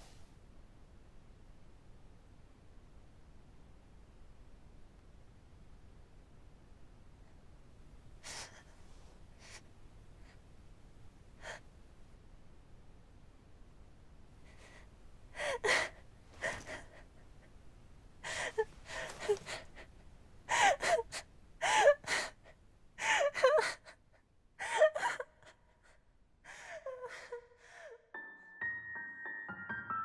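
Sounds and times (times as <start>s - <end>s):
girl sobbing: 14.5s - 17.5s, 18.2s - 24.0s, 24.6s - 28.1s
soft piano notes: 28.2s - 30.0s.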